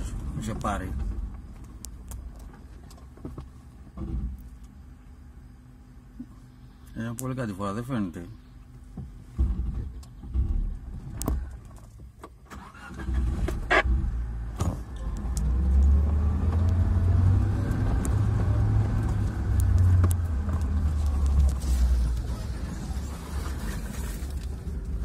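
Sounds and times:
engine running at low revs: 13.0s - 25.0s.

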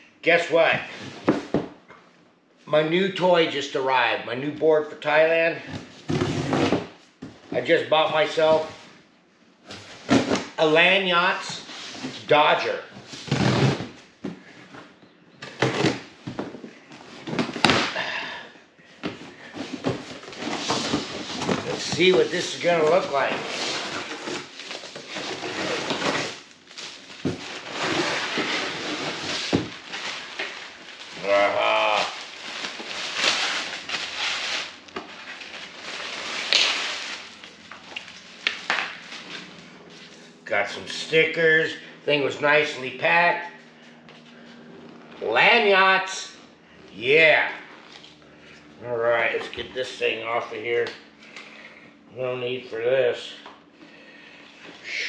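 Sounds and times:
cardboard scraping and rustling: 19.0s - 31.3s
plastic bag crinkling: 29.8s - 39.4s
packing tape being cut: 32.6s - 39.4s.

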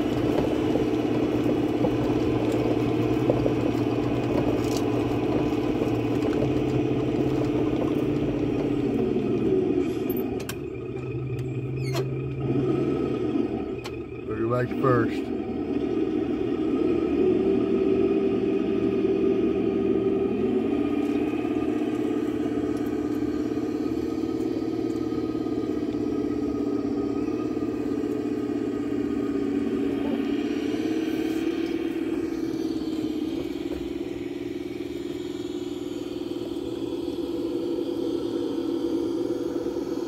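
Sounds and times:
golf cart engine hum: 0.0s - 40.0s.

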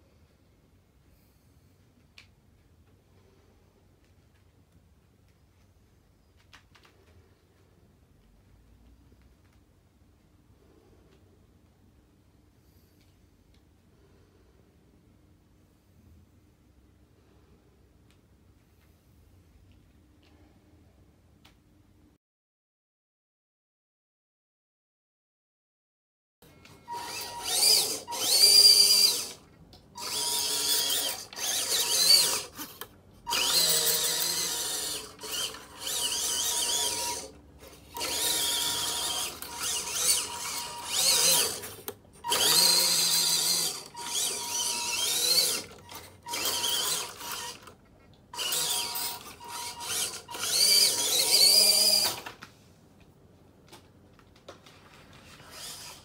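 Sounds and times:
toy car electric motor whining: 26.9s - 29.4s, 30.0s - 52.3s, 55.4s - 56.0s.

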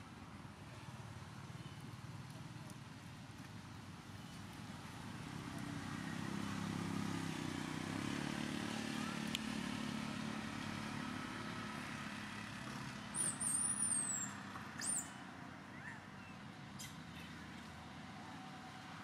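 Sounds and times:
vehicle engine droning past: 5.1s - 15.1s
sharp high chirps: 13.2s - 15.1s.

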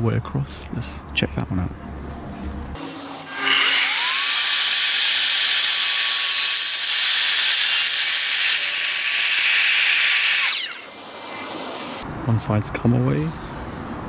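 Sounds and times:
mitre saw cutting plywood: 2.8s - 12.0s.

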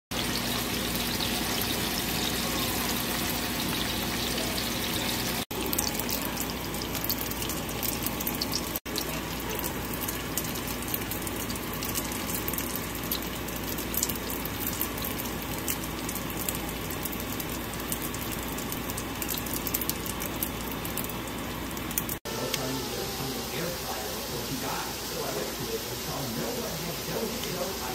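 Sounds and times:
tofu sizzling in hot oil: 0.1s - 22.2s.

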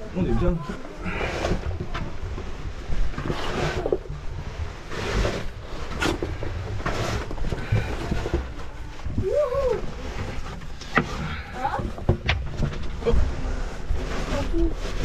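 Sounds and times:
scraping and rustling on dirt: 0.0s - 15.0s.

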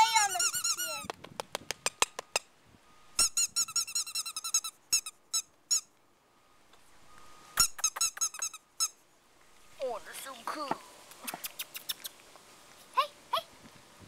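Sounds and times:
puppy squeaking: 0.0s - 1.1s, 3.2s - 5.9s, 7.6s - 9.0s.

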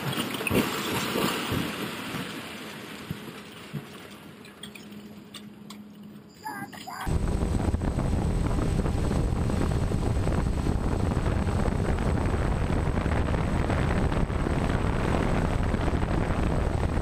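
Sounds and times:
faint high whine: 4.6s - 17.0s
drone propellers rushing: 6.5s - 17.0s
wind buffeting microphone: 7.0s - 17.0s.

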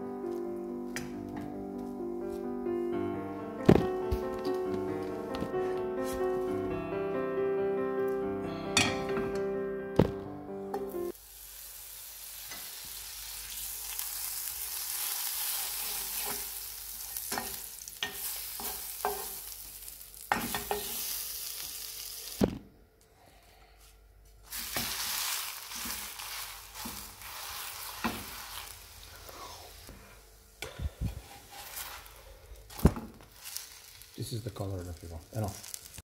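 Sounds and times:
butter sizzling in a frying pan: 11.1s - 22.4s, 24.5s - 29.9s, 31.2s - 36.0s.

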